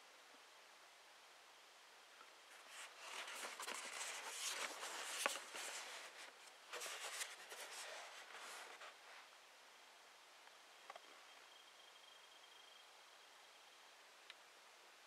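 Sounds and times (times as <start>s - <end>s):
cardboard rustling and scraping: 2.5s - 9.3s.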